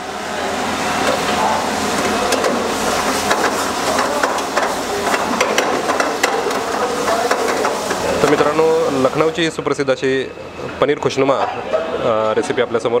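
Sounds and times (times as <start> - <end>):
ladle clicking against pan: 2.0 - 8.5.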